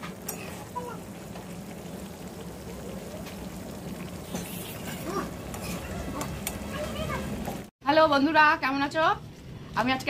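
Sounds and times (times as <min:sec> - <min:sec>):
curry simmering and sizzling: 0:00.0 - 0:07.7
steel spatula stirring: 0:04.2 - 0:06.5.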